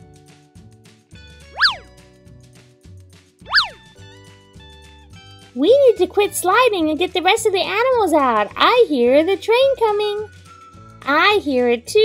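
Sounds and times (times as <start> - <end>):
light children's music: 0.0 - 12.0
swooping cartoon sound effect: 1.6 - 1.9, 3.5 - 3.8.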